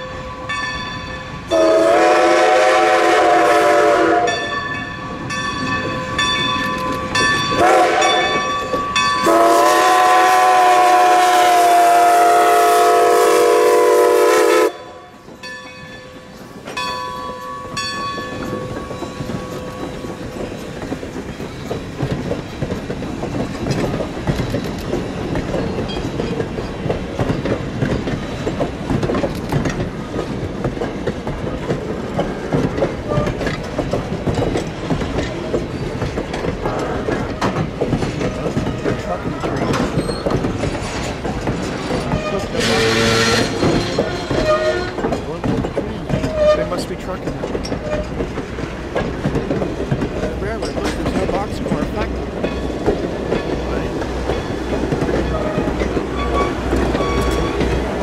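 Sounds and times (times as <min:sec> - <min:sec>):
bell ringing: 0:00.0 - 0:01.4, 0:04.3 - 0:09.3, 0:15.4 - 0:20.0
train coaches rumbling past: 0:00.0 - 0:58.0
steam locomotive whistle: 0:01.5 - 0:04.6, 0:07.6 - 0:08.6, 0:09.2 - 0:15.2, 0:42.1 - 0:45.1, 0:55.3 - 0:57.7
wheels clicking over rail joints: 0:04.3 - 0:10.9, 0:15.1 - 0:58.0.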